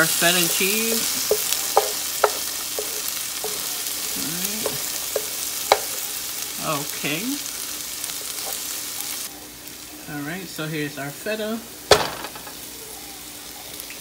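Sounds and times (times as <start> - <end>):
vegetables sizzling in a pan: 0.0 - 14.0
utensil clicking against pan: 0.3 - 3.8, 4.4 - 6.1.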